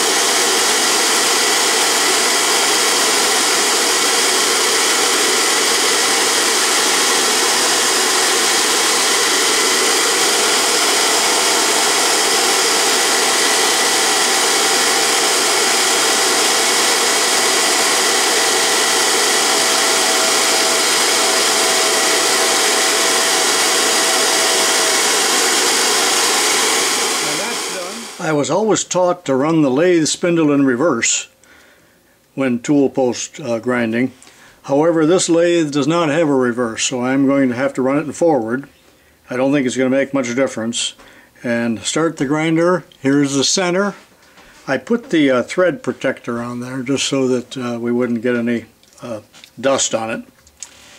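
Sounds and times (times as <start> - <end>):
grinder high whine with hiss: 0.0 - 28.8.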